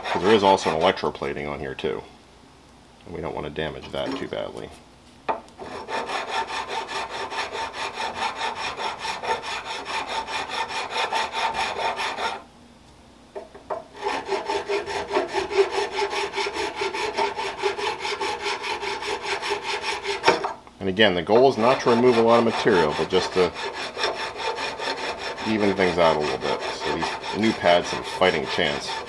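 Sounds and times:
hand file rasping on metal: 0.0s - 1.0s, 5.6s - 12.4s, 13.9s - 20.4s, 21.3s - 29.0s.

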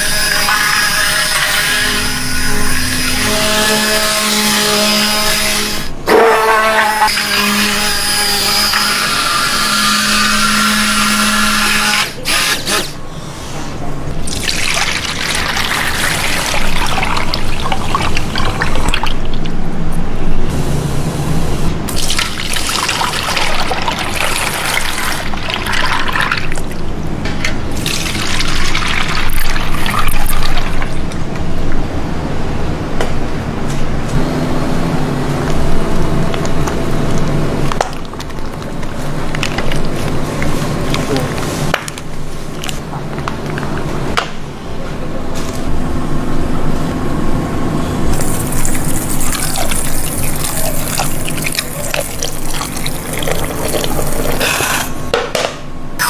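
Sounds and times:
liquid trickling into metal bowl: 48.2s - 54.7s.

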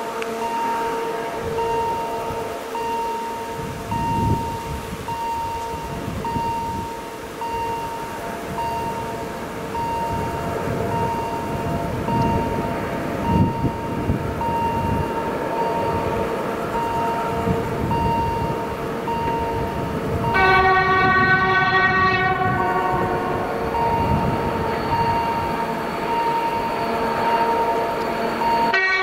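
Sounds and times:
diesel locomotive rumble: 0.0s - 29.0s
locomotive horn: 0.0s - 29.0s
level crossing warning beeps: 0.3s - 29.0s.

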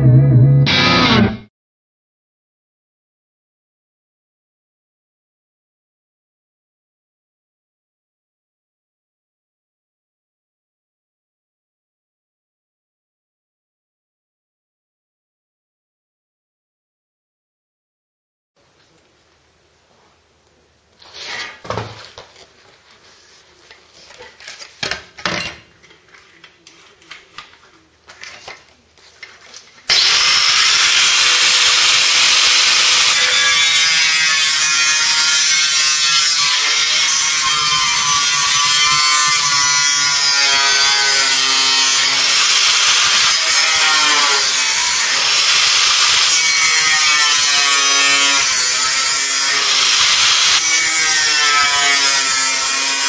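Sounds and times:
power tool on metal: 29.9s - 53.0s.

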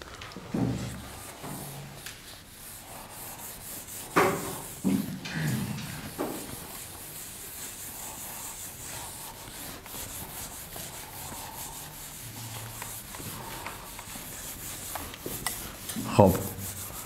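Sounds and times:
eraser wiping whiteboard: 0.5s - 17.0s.

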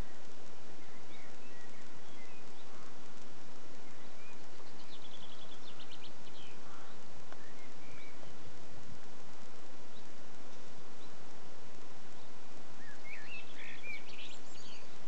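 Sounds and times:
small birds chirping: 0.0s - 15.0s
bird trill: 3.8s - 8.5s, 12.2s - 15.0s.

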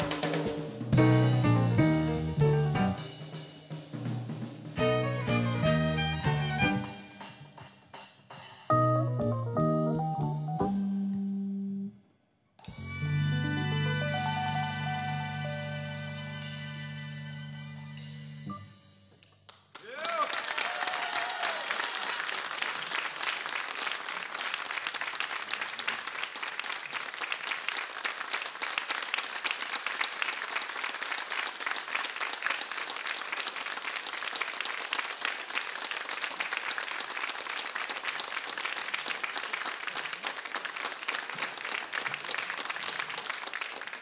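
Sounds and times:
audience applauding: 0.0s - 0.9s, 19.5s - 44.0s.

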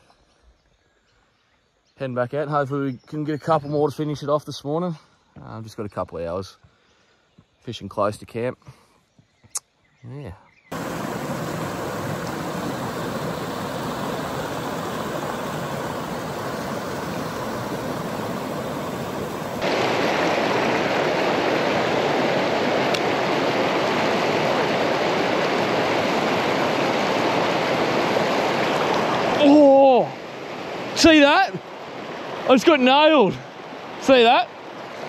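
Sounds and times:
river rapids rushing over rocks: 10.8s - 29.6s.

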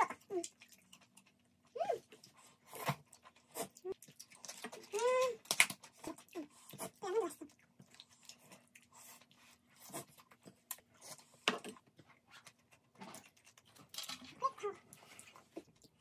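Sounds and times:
chewing and smacking: 0.0s - 16.0s.

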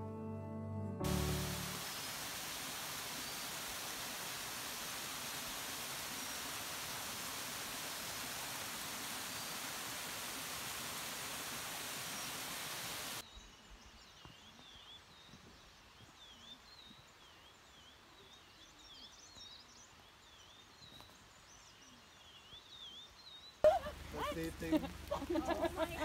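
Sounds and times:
small waterfall rushing: 1.0s - 13.2s
birds chirping: 1.1s - 26.0s.

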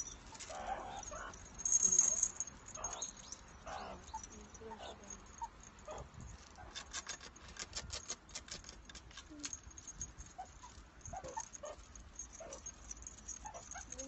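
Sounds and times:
meerkats peeping: 0.0s - 7.0s, 10.3s - 11.8s, 12.4s - 14.0s
light clicks and patter on concrete: 0.2s - 14.0s.

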